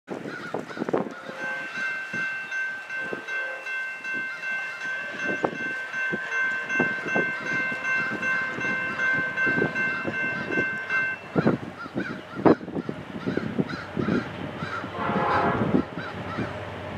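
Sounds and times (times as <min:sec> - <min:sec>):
distant locomotive air horn: 0:01.2 - 0:02.2, 0:03.0 - 0:03.9, 0:14.9 - 0:16.0.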